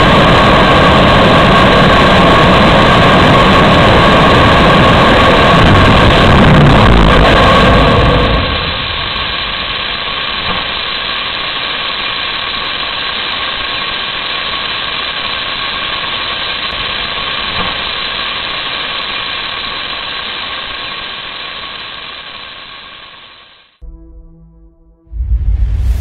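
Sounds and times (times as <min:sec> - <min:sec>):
rocket engine exhaust rush: 0:00.0 - 0:10.5, 0:25.1 - 0:26.0.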